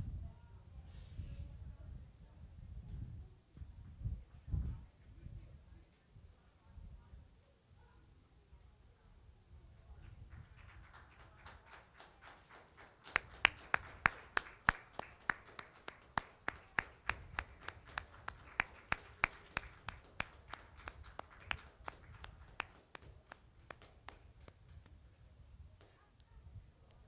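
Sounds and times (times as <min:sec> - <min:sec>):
rhythmic hand clapping: 0:10.3 - 0:24.9.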